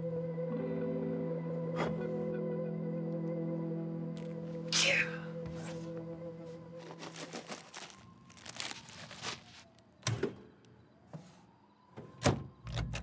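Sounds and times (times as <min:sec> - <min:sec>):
plastic wrapper crinkling: 0:06.8 - 0:09.9.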